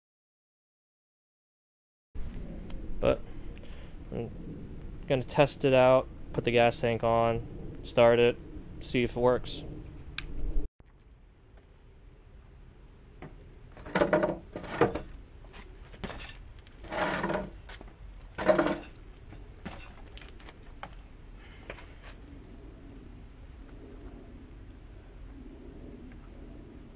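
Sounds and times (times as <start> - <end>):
clunks and rattles of parts: 13.8 - 15.1, 15.9 - 19.0, 19.6 - 21.0.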